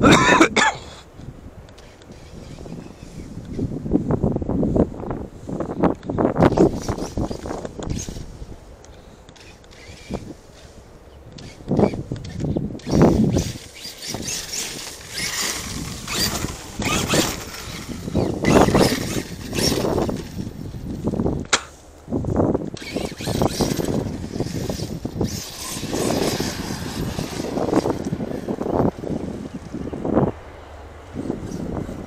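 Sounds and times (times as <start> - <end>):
electric motor revving: 9.4 - 10.7, 11.4 - 20.6, 22.8 - 30.2
sharp crack: 21.5 - 21.8.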